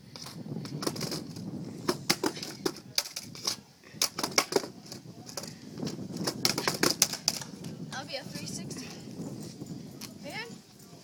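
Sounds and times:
skateboard clacking on asphalt: 0.1 - 7.8.

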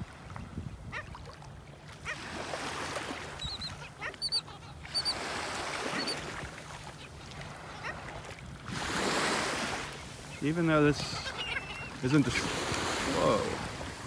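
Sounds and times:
surf washing: 0.0 - 14.0
birds honking yaps: 3.2 - 8.2, 9.2 - 13.7
high bird chirps: 3.4 - 5.2, 11.2 - 12.0.

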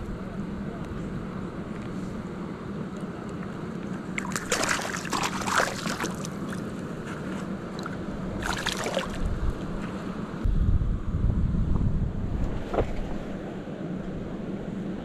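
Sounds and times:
rushing water: 4.0 - 7.0, 7.6 - 9.4
water splashing: 4.1 - 6.9, 7.7 - 9.4.

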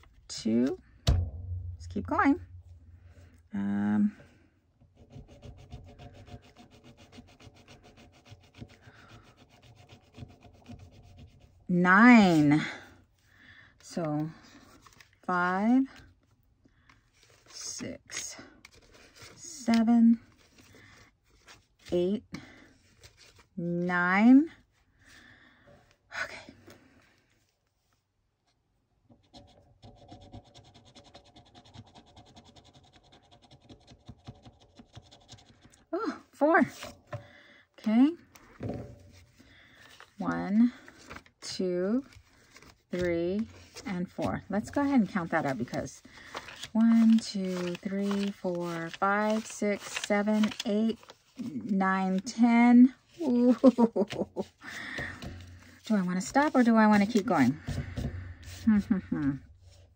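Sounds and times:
scratching a scratch-off on paper: 5.0 - 12.6, 29.2 - 35.8
scratching on scratch-off paper: 5.0 - 12.6, 29.2 - 35.8, 41.1 - 59.9.

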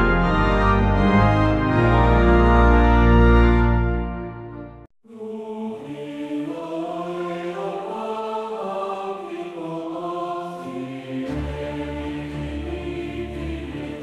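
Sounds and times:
choir singing held notes: 5.1 - 14.0.

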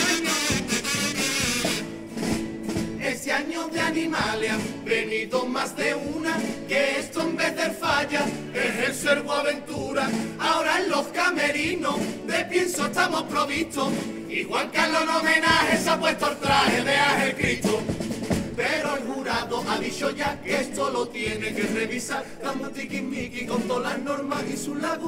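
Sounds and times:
choir singing: 0.0 - 1.2, 3.0 - 25.0
instrumental accompaniment: 0.0 - 5.1, 5.9 - 20.6.

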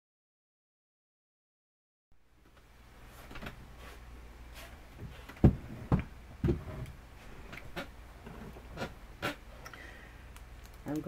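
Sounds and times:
low steady hum: 2.2 - 11.0
dull thumps: 5.0 - 6.9
faint clicks: 9.6 - 11.0.

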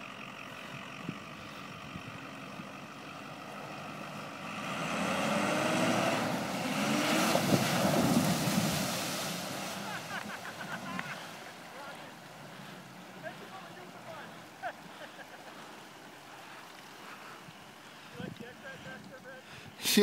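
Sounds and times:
pickup truck engine running: 0.0 - 19.4
water splashing: 3.9 - 18.1.

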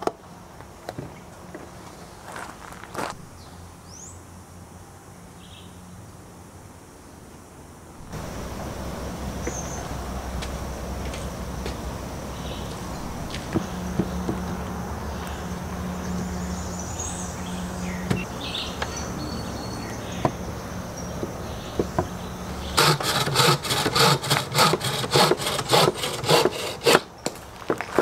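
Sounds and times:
hand saw rasping through branch: 22.6 - 27.1.

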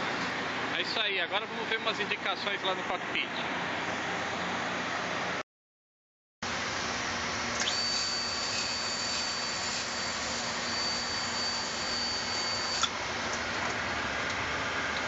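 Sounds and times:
rush of air and fan noise: 0.0 - 5.4, 12.8 - 15.0
thin high whine: 7.5 - 13.0
click: 12.8 - 13.4.

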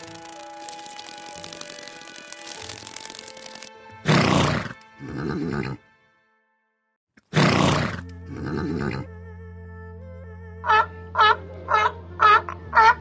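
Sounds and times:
background music with steady tones: 0.0 - 7.0, 7.7 - 13.0
horse whinnying: 7.3 - 9.1.

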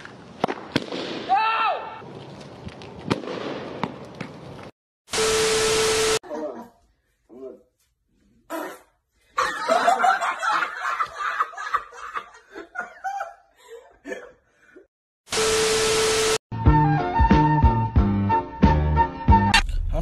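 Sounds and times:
people laughing and giggling: 9.3 - 14.4
static hiss glitch with tone: 15.3 - 16.4.

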